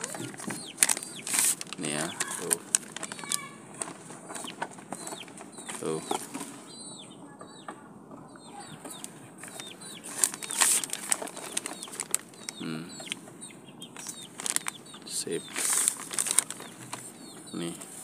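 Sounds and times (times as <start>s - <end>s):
plastic wrapping crinkling: 0.0s - 6.5s, 9.4s - 13.2s, 14.0s - 17.1s
small birds chirping: 0.0s - 18.0s.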